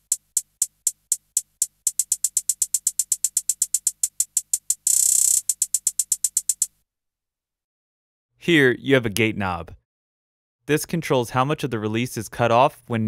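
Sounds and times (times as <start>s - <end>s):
hi-hat ticks: 0.0s - 6.7s.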